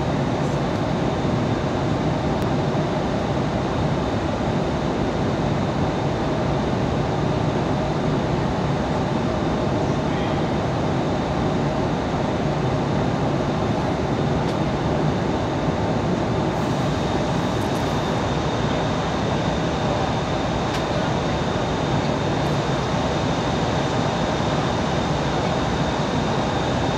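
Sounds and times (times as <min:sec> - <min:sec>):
aircraft engine drone: 0:00.0 - 0:26.9
air rushing along fuselage: 0:10.6 - 0:26.9.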